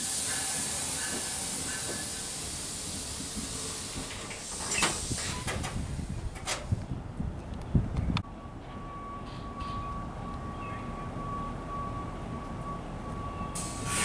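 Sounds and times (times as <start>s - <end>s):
train hissing: 0.0s - 6.2s, 13.6s - 14.0s.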